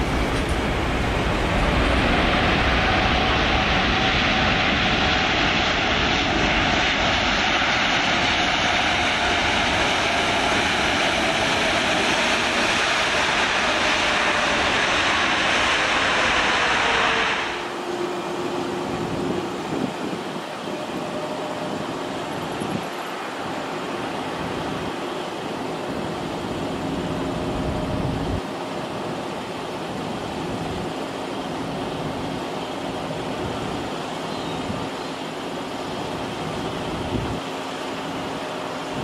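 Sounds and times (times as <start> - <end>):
jet engines rushing: 0.0 - 39.0
wind buffeting microphone: 18.6 - 23.7, 36.0 - 39.0.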